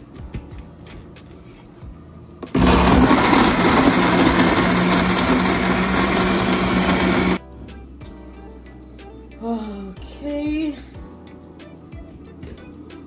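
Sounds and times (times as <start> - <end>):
blender running: 2.5 - 7.4.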